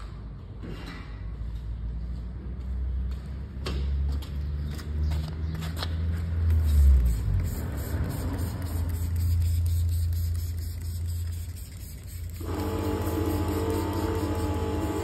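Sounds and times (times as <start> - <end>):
water spray hissing: 6.6 - 15.0
pressure washer motor hum: 12.1 - 15.0.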